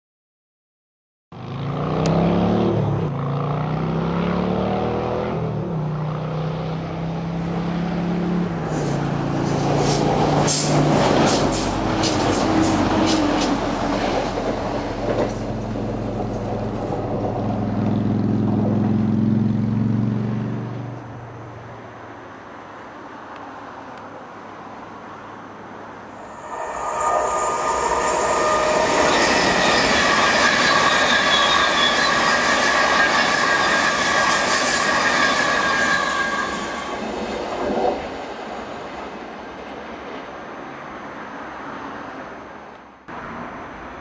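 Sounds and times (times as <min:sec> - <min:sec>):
train wheel clicks on track: 0:09.5 - 0:16.5.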